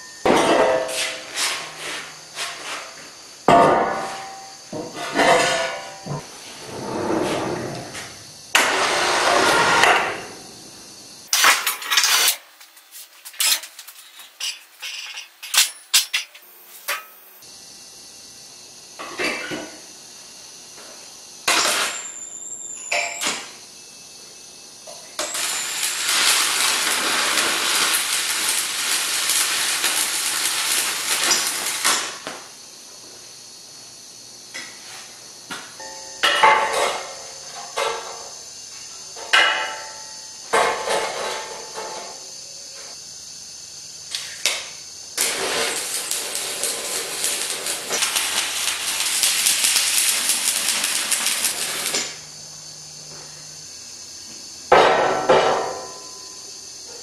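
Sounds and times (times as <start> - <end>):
arc welding crackle: 11.3 - 17.4, 25.1 - 32.6, 44.1 - 52.4.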